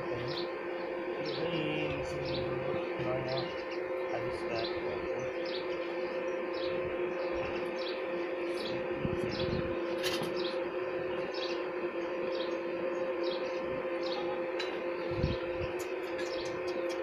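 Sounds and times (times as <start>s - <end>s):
low two-note hum: 0.0s - 17.0s
bird chirping: 1.2s - 9.7s, 11.2s - 11.6s, 15.0s - 17.0s.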